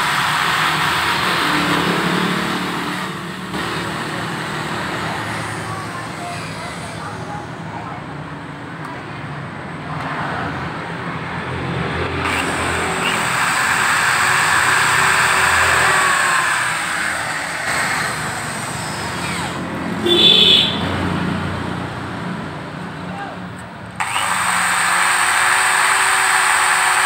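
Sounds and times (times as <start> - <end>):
electric drill motor whine: 0.0 - 1.5, 12.2 - 19.7, 24.0 - 27.0
gritty grinding of valve: 12.2 - 19.7.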